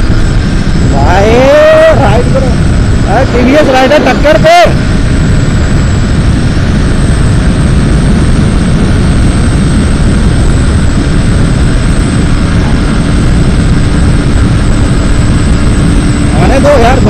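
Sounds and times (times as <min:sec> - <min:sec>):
motorcycle engine at high revs: 0:00.0 - 0:17.0
wind rush on microphone: 0:00.0 - 0:17.0.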